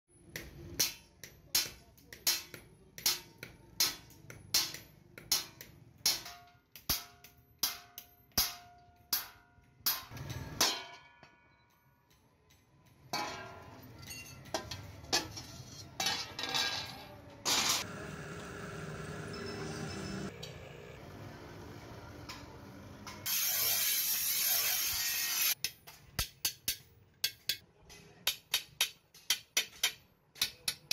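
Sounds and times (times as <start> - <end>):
hammer striking steel sheet: 0.4 - 11.4
metal clattering and knocking: 13.0 - 17.8.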